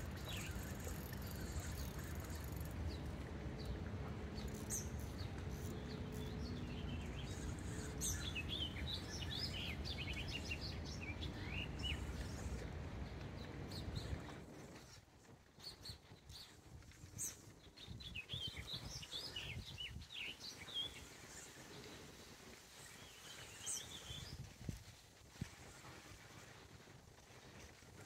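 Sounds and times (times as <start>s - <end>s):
small birds chirping: 0.0s - 15.0s, 15.6s - 22.0s.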